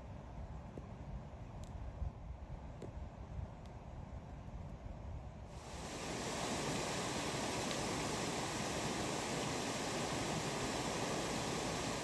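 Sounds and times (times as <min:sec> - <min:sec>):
wind: 0:00.0 - 0:12.0
open water rushing: 0:05.6 - 0:12.0.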